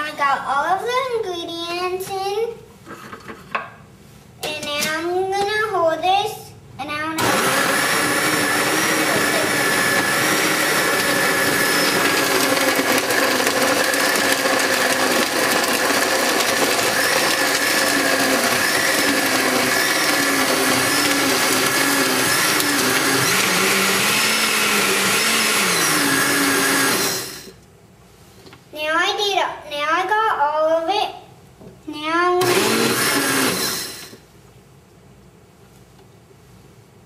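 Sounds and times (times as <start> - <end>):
blender crushing ice: 7.2 - 27.6, 32.4 - 34.2.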